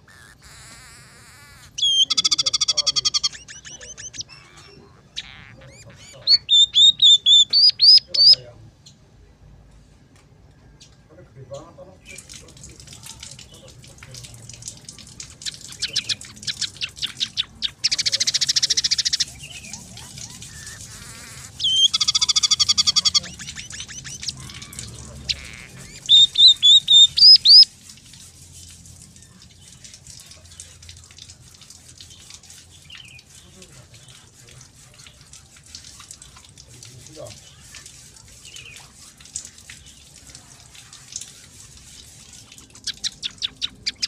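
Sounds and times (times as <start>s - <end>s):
bird song with chips and trills: 0.0s - 9.0s, 14.7s - 27.7s, 40.9s - 44.0s.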